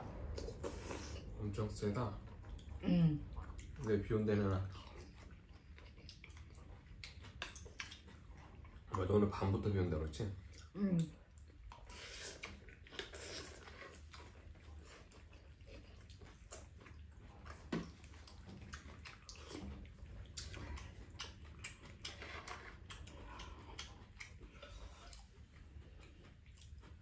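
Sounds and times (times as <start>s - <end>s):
steady low hum: 0.0s - 11.5s.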